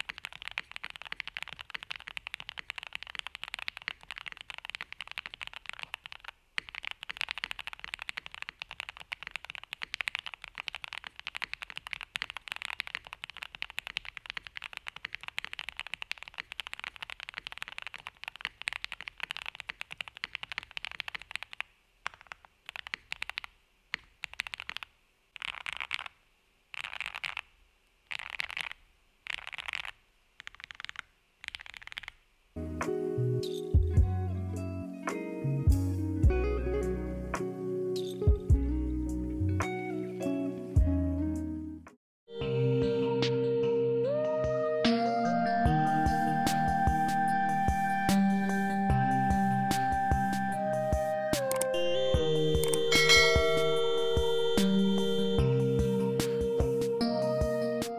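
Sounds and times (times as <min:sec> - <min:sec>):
mechanical keyboard typing: 0:00.0 - 0:26.1.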